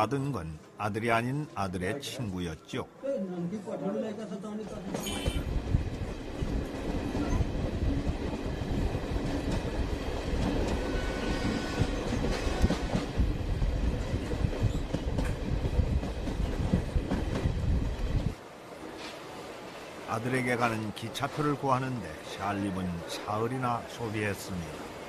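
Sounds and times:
train wheels clattering on rails: 4.7 - 19.8.

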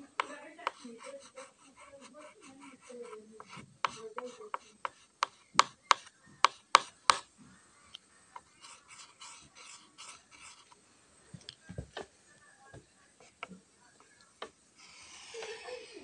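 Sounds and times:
chalk scraping on chalkboard: 0.1 - 7.3, 8.4 - 10.8.

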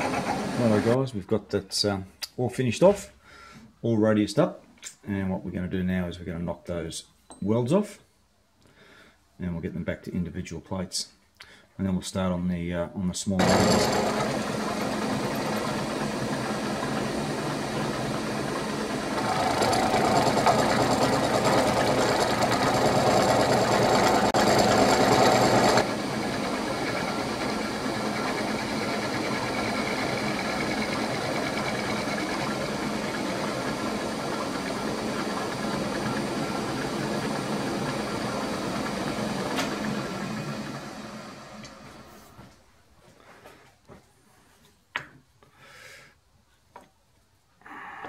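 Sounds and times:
machine tool cutting metal: 13.4 - 25.9.

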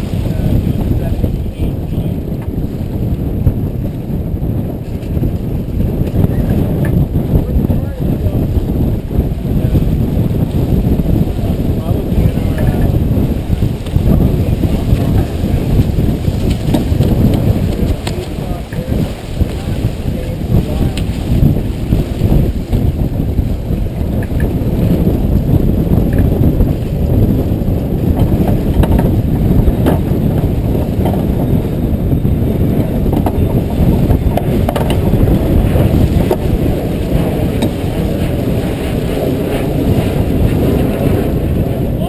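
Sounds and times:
water splashing along hull: 0.0 - 42.0
wind rumbling on microphone: 0.0 - 42.0.

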